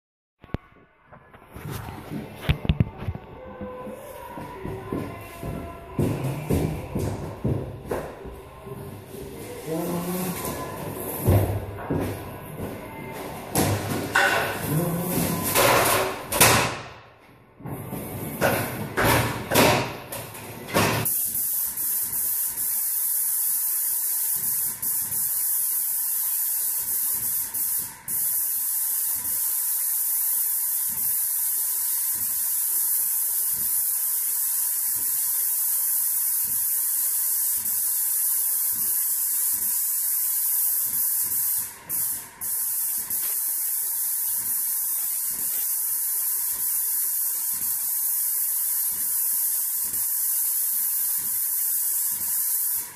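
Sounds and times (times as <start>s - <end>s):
paint spray gun hissing: 21.0s - 52.9s.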